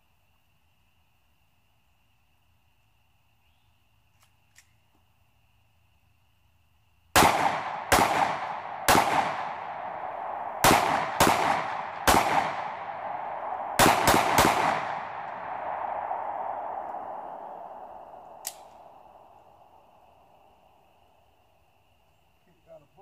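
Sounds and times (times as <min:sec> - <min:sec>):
pistol shots: 0:07.2 - 0:16.5.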